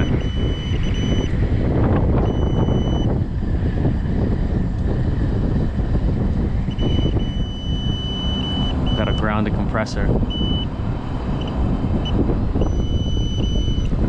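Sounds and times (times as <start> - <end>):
high continuity beep: 0.0 - 1.3, 2.2 - 3.1, 6.7 - 9.5, 10.3 - 10.7, 11.4 - 13.9
steady low rumble: 0.0 - 14.0.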